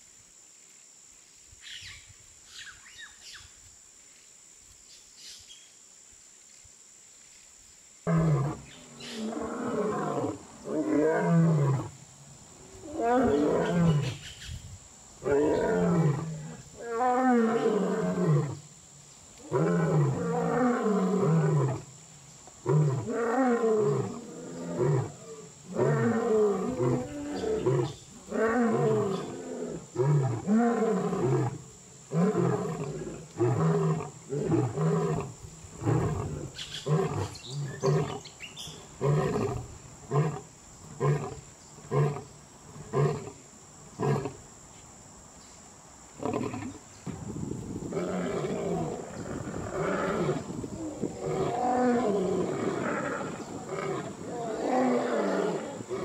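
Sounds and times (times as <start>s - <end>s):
lion roaring: 8.1s - 11.9s, 47.9s - 56.0s.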